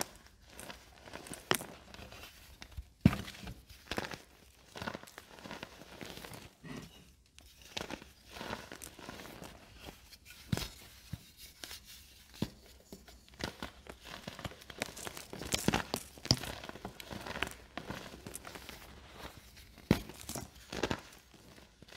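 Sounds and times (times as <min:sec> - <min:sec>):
baking soda crunching by hand: 0:13.3 - 0:19.4.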